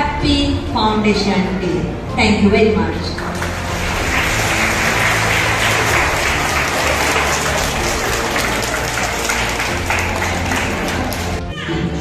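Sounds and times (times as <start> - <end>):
audience applause: 3.4 - 11.4.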